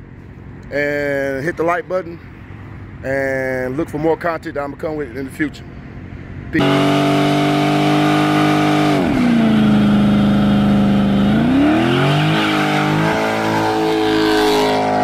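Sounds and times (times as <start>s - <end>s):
car engine at high revs: 6.6s - 15.0s.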